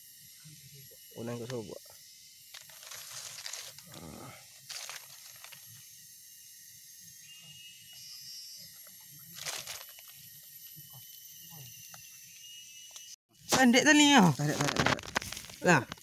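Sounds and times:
steady high hiss: 0.0s - 3.9s
dry leaves rustling and crackling: 2.5s - 5.7s, 9.3s - 10.3s, 13.5s - 16.0s.

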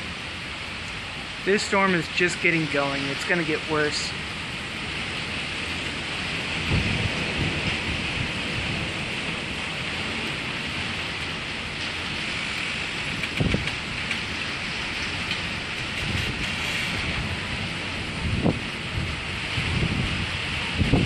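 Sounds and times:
rain on a carport roof: 0.0s - 21.0s
thunder rumbling: 0.0s - 21.0s.

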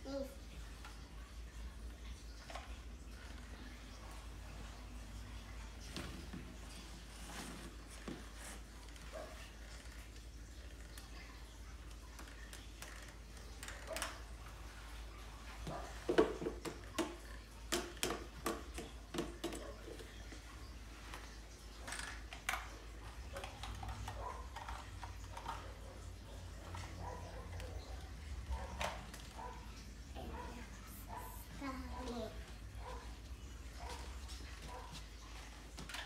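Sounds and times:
plastic toys clattering: 2.2s - 4.8s, 5.6s - 15.0s, 15.6s - 29.6s, 33.8s - 36.0s.

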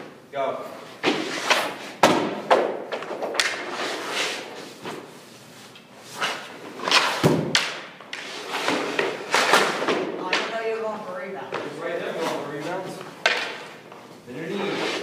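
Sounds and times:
skates scraping on ice: 1.0s - 1.9s, 3.3s - 5.1s, 6.0s - 7.4s, 8.1s - 10.1s, 14.5s - 15.0s
leg pads thudding on rink: 1.0s - 3.7s, 6.2s - 10.9s, 13.2s - 13.9s.

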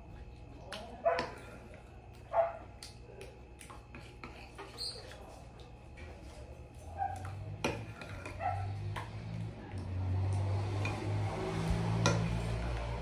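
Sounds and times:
metal spoon stirring in glass bowl: 7.6s - 8.4s
spoon scraping bowl: 7.6s - 8.5s.

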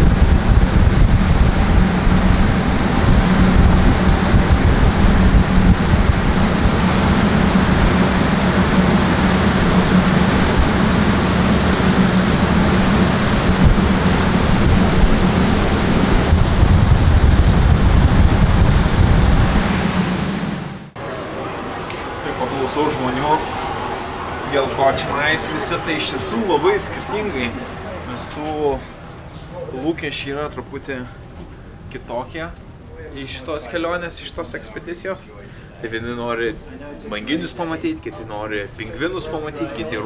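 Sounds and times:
wind buffeting microphone: 0.0s - 20.8s
water rushing past hull: 0.0s - 29.3s
boat engine drone: 0.0s - 29.7s.

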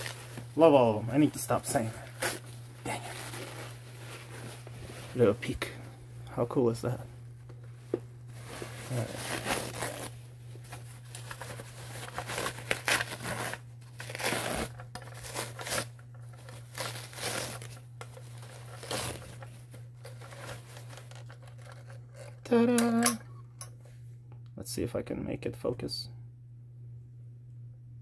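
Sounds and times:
paper crumpling and rustling: 0.0s - 0.6s, 1.5s - 5.8s, 8.3s - 22.3s
paper tearing: 8.9s - 10.1s, 11.2s - 22.3s.

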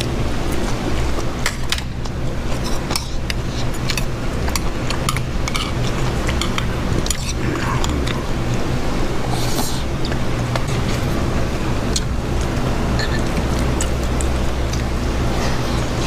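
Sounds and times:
utensils clinking on metal bowl: 12.9s - 14.8s.

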